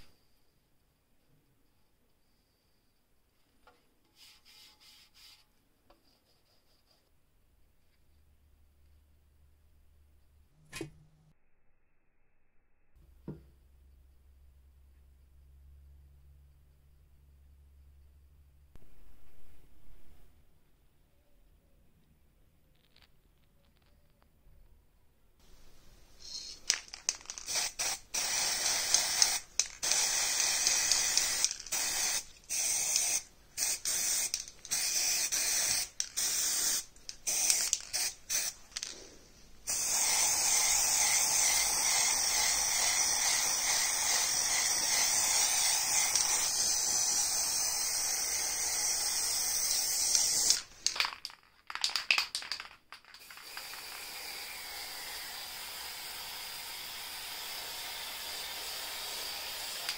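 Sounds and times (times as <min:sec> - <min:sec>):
faint steady hiss: 0:00.0 - 0:11.4, 0:13.0 - 0:59.9
aerosol spray can hissing: 0:26.2 - 0:50.8, 0:53.2 - 0:59.9.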